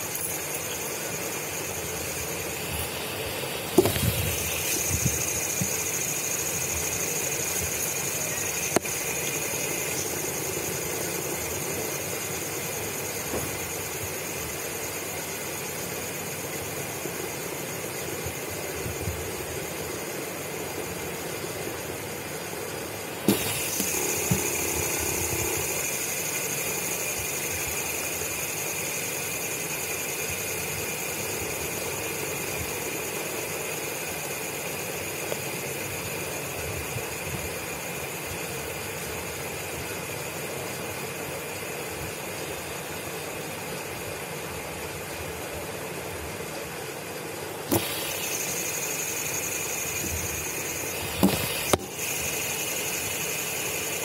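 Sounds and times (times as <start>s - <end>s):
faint high whine: 0.0s - 54.0s
machine hum and hiss: 0.0s - 54.0s
sharp click: 47.7s - 48.4s.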